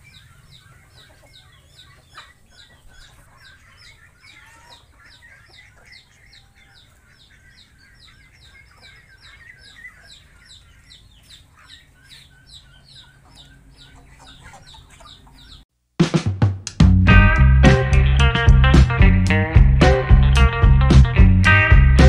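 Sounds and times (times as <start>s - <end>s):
chickens clucking: 0.0s - 15.7s.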